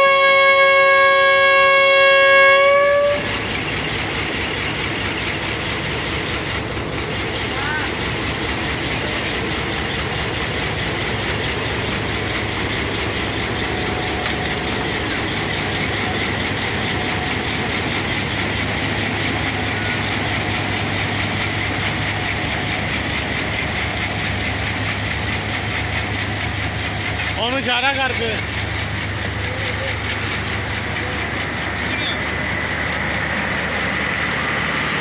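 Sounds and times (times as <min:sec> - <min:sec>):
locomotive engines humming: 0:00.0 - 0:35.0.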